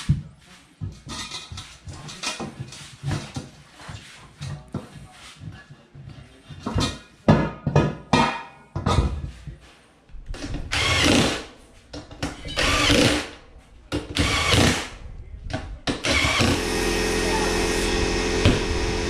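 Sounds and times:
cordless drill spinning: 0:14.2 - 0:14.8, 0:16.0 - 0:19.0.

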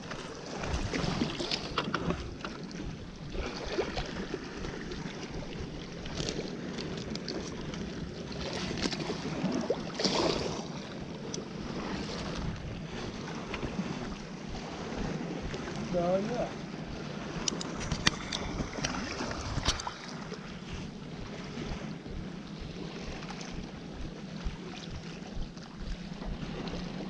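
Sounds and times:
sea water washing: 0:00.0 - 0:27.0
wind buffeting microphone: 0:00.0 - 0:27.0.

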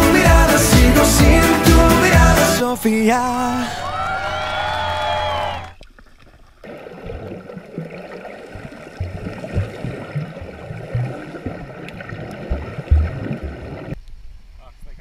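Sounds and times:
low underwater thumps and knocks: 0:09.0 - 0:14.0.

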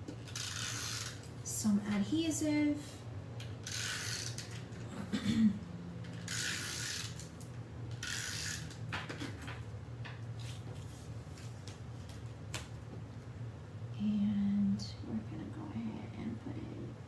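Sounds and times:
tape runner ratcheting strokes: 0:00.2 - 0:01.3, 0:03.4 - 0:04.7, 0:06.1 - 0:08.8.

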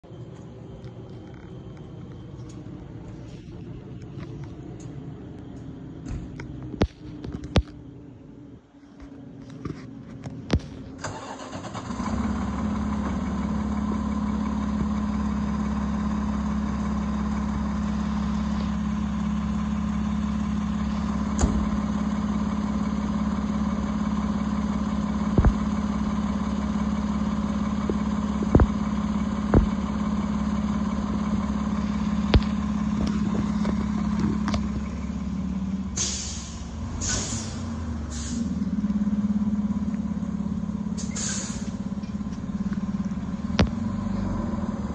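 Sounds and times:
diesel engine droning: 0:00.0 - 0:44.9
short hissing bursts: 0:36.0 - 0:38.4, 0:41.0 - 0:41.7.

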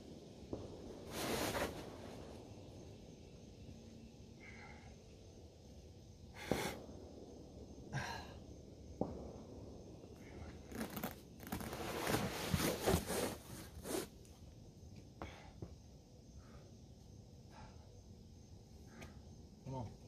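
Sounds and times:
shoes and hands scraping rock: 0:11.6 - 0:14.1.

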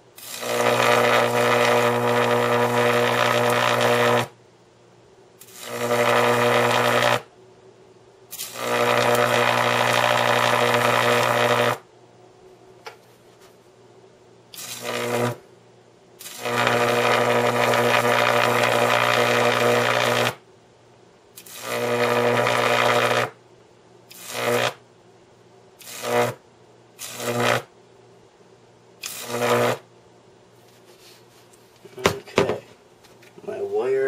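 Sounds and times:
high-voltage arc buzzing: 0:00.0 - 0:04.4, 0:05.4 - 0:07.3, 0:08.3 - 0:11.9, 0:14.5 - 0:15.5, 0:16.2 - 0:20.4, 0:21.3 - 0:23.4, 0:24.1 - 0:24.8, 0:25.8 - 0:26.4, 0:27.0 - 0:27.7, 0:29.0 - 0:29.9.

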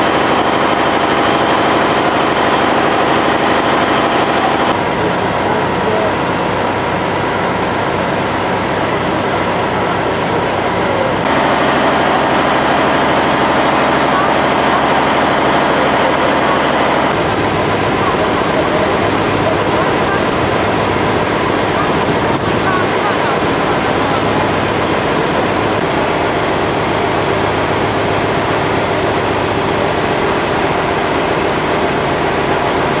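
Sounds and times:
broad rushing noise: 0:00.0 - 0:33.0
pump engine running: 0:00.0 - 0:33.0.

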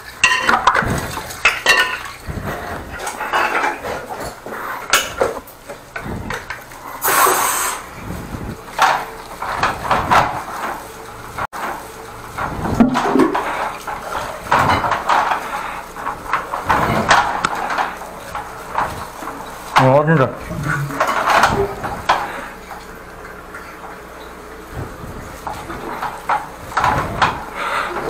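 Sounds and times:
clattering and knocking: 0:00.0 - 0:06.8, 0:08.7 - 0:10.8, 0:12.4 - 0:19.8, 0:20.4 - 0:22.4, 0:24.7 - 0:27.5
splashing water: 0:00.0 - 0:10.8, 0:12.5 - 0:28.0
high-pressure jet hiss: 0:07.0 - 0:07.9.

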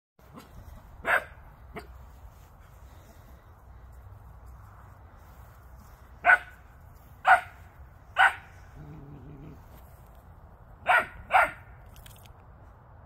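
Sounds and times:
dog barking: 0:01.0 - 0:01.9, 0:06.2 - 0:06.5, 0:07.2 - 0:07.6, 0:08.2 - 0:08.5, 0:10.8 - 0:11.6.

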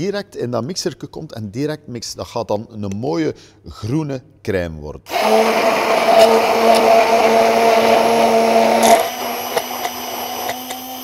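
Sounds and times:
immersion blender motor humming: 0:05.1 - 0:11.0.

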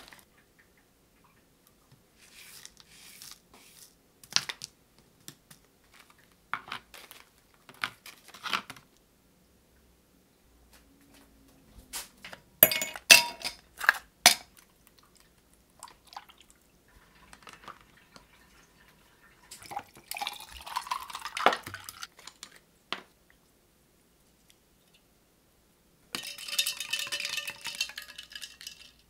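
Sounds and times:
ice cubes clinking into glass: 0:12.6 - 0:13.6, 0:26.2 - 0:29.0
water trickling into plastic tray: 0:14.8 - 0:22.6.

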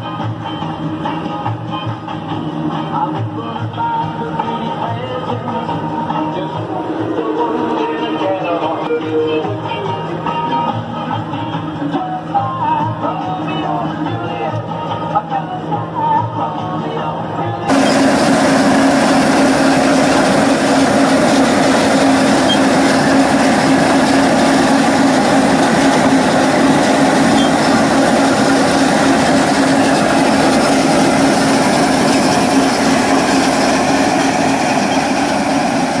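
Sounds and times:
mower droning: 0:17.7 - 0:36.0.

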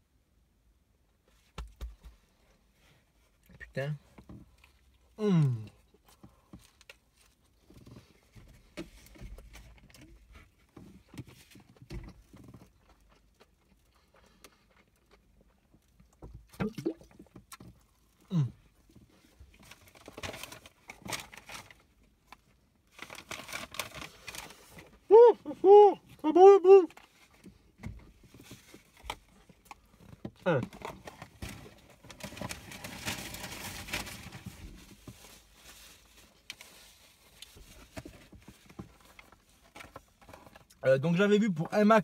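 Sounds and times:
person chewing: 0:12.6 - 0:17.6.

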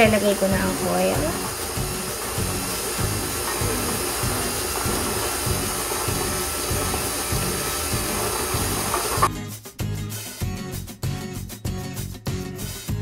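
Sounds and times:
stand mixer whirring: 0:00.0 - 0:09.3
background music: 0:00.0 - 0:13.0.

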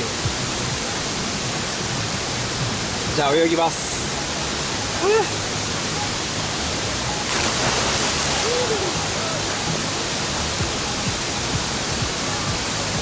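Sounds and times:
waterfalls rushing into pool: 0:00.0 - 0:13.0
person jumping into water: 0:07.3 - 0:09.0.

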